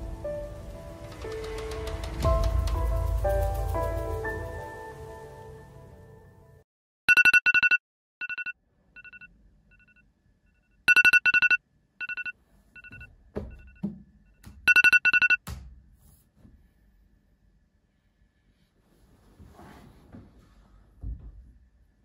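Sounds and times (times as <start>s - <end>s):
phone alarm beeping: 7.1s - 10.0s, 10.9s - 13.8s, 14.7s - 15.4s.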